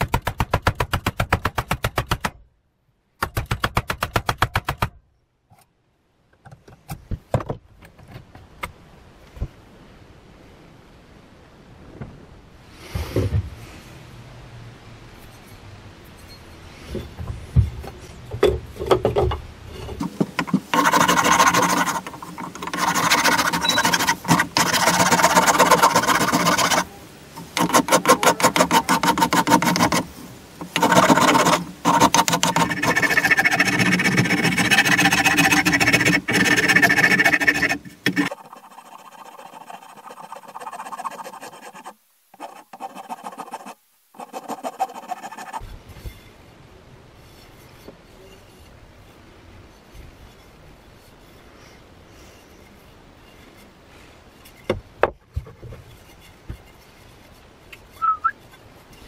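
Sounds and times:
rasp scraping wood: 19.7 - 45.7.

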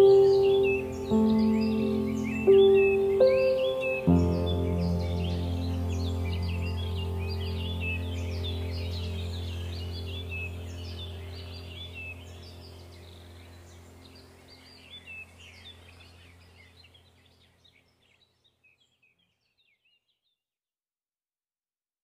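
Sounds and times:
low steady drone: 0.0 - 17.1
birdsong chirping: 0.0 - 20.4.

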